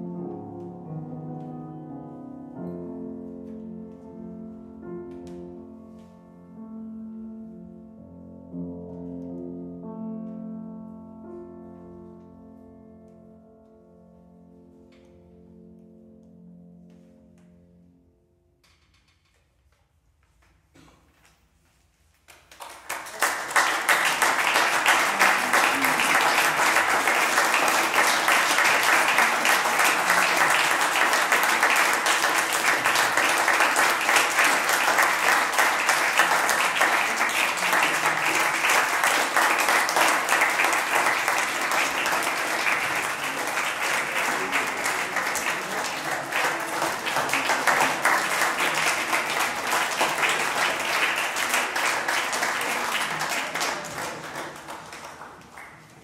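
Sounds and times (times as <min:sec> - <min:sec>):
audience applauding: 0:22.3 - 0:56.0.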